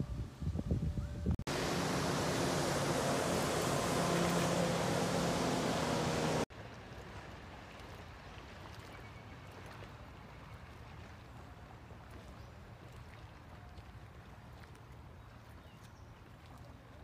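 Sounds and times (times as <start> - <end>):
motorboat engine droning: 1.4 - 6.5.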